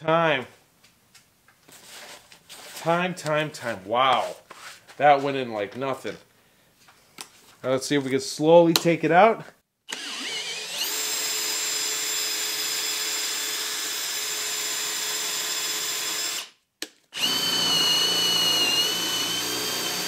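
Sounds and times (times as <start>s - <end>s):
drill motor whining: 9.9s - 16.5s, 17.2s - 20.0s.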